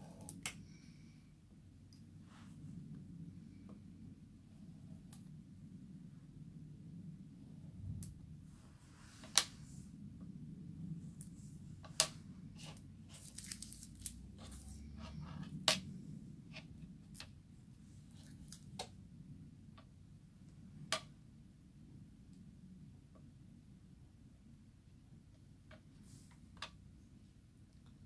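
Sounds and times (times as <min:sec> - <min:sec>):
foil crinkling: 0:13.1 - 0:14.2.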